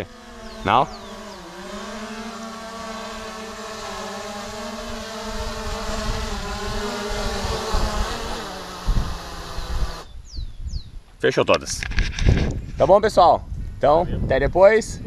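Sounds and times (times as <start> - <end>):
drone propellers buzzing whine: 0.0 - 10.2
wind rumble on microphone: 4.2 - 15.0.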